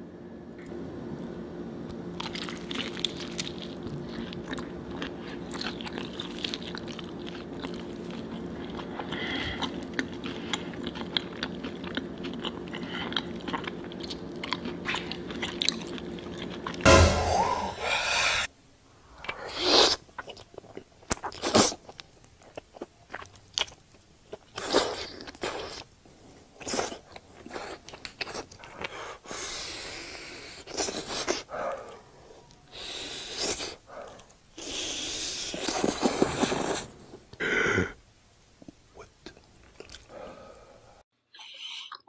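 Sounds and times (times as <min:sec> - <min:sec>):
person chewing: 0:02.2 - 0:16.8, 0:19.2 - 0:26.0, 0:26.6 - 0:29.1, 0:30.6 - 0:36.9, 0:38.6 - 0:40.2.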